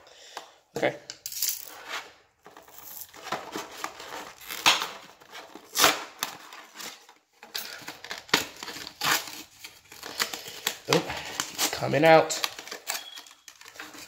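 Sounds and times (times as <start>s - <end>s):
plastic crinkling: 2.4s - 14.0s
cardboard ripping: 3.1s - 14.0s.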